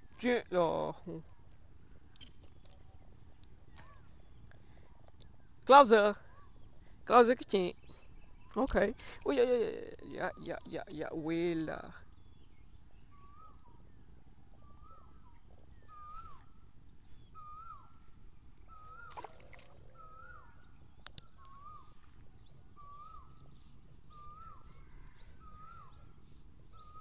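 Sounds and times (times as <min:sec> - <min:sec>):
animal calling: 0:18.7 - 0:20.7.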